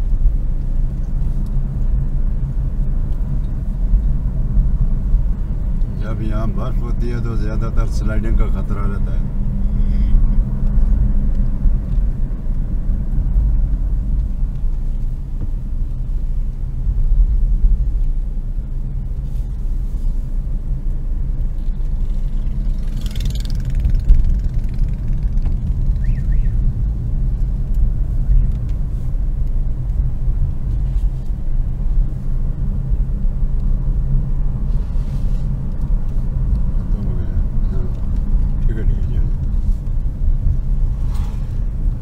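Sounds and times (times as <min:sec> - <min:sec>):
car engine and road rumble: 0:00.0 - 0:42.0
passing vehicle rushing hiss: 0:40.9 - 0:41.8.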